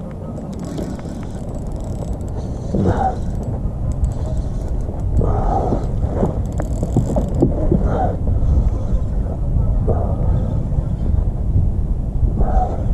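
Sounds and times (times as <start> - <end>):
steady low rumble: 0.0 - 12.9
fishing reel creaking: 0.3 - 8.0.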